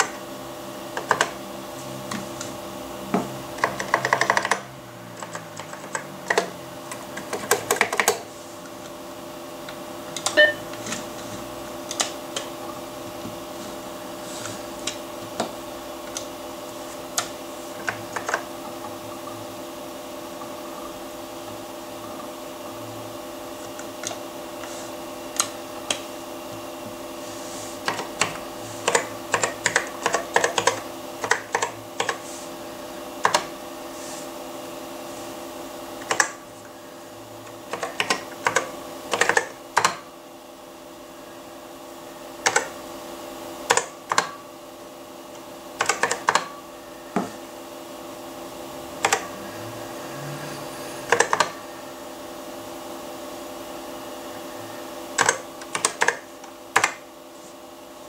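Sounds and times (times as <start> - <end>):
faint hum: 0.0 - 57.6
clicky keyboard keystrokes: 27.9 - 32.2, 37.7 - 40.0, 45.8 - 46.5, 51.1 - 51.5, 55.2 - 56.2.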